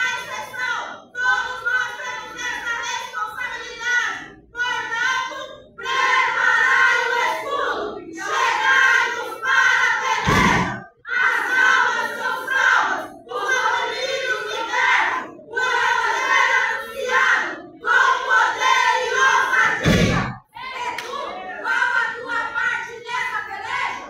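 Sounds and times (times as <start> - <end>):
women chanting in unison: 0.0 - 24.0
heavy thump: 10.2 - 10.8, 19.7 - 20.4.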